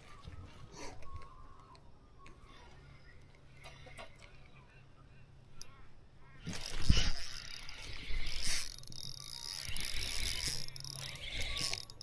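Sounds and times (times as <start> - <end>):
fishing reel whirring: 6.4 - 12.0.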